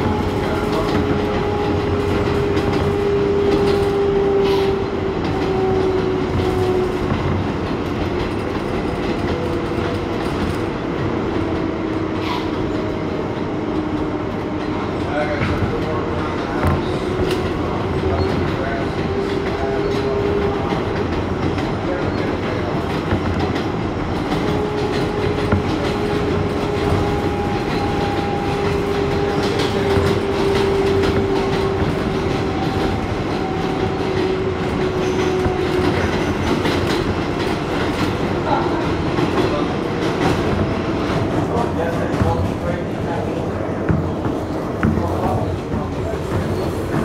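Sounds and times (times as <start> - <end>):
rail-joint clicks: 0.0 - 47.0
wheel-on-rail rumble: 0.0 - 47.0.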